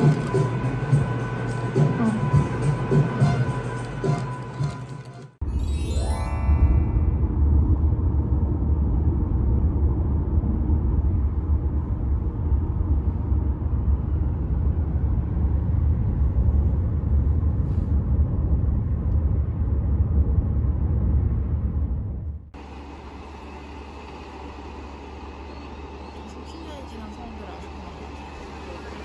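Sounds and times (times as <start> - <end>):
car road and engine rumble: 7.2 - 29.0.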